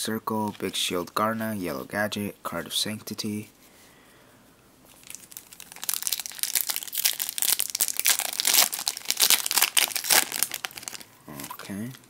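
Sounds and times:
foil wrapper tearing and crinkling: 4.9s - 12.0s.

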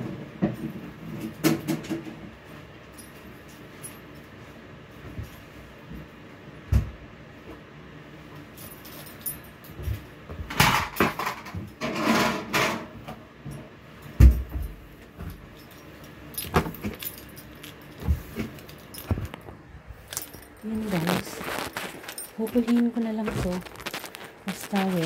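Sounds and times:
rustling: 16.7s - 25.0s.

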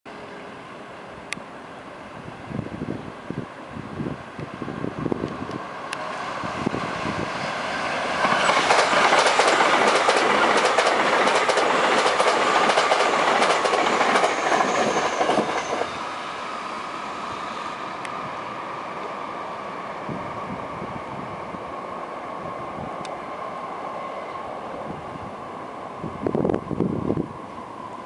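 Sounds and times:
train wheels clattering over rails: 8.0s - 15.9s.

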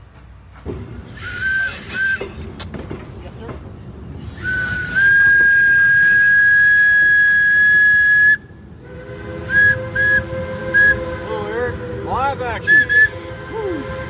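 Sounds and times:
steam locomotive whistle: 1.1s - 2.3s, 4.3s - 14.0s.

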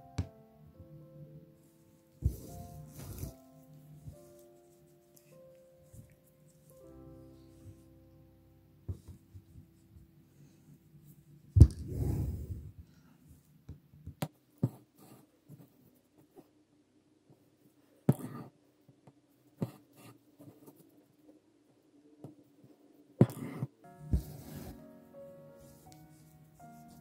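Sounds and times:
thread rustling through fabric: 1.7s - 7.9s, 23.4s - 27.0s.

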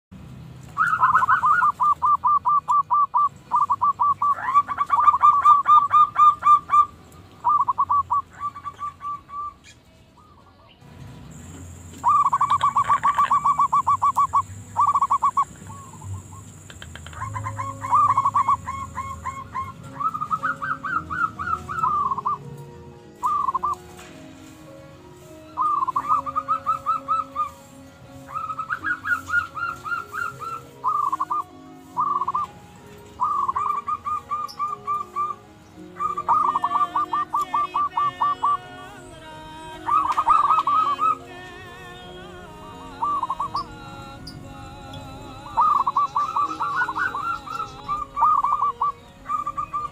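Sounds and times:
doves cooing rapidly: 0.7s - 10.7s, 11.3s - 22.5s, 23.2s - 24.0s, 25.3s - 49.9s
steady high whine: 10.8s - 32.9s.

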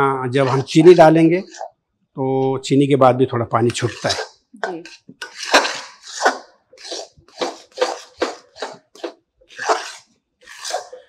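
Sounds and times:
metal spoon scraping metal pan: 0.4s - 1.7s, 3.7s - 11.0s.

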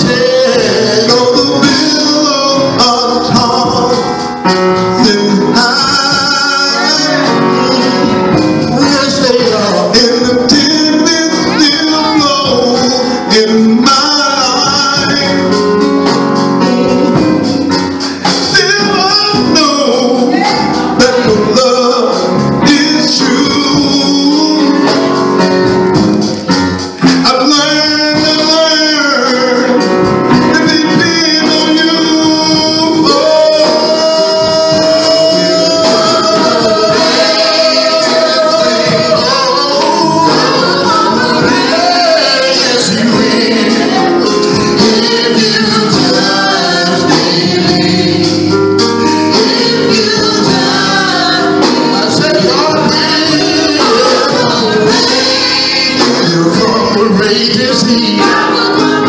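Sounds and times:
band accompaniment: 0.0s - 59.0s
men singing gospel lead: 0.0s - 59.0s
women singing backup: 34.2s - 48.6s, 49.4s - 56.5s.

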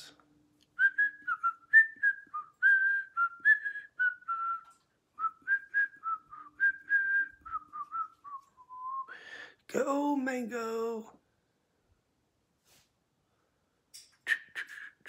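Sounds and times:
person whistling a tune: 0.8s - 9.2s.

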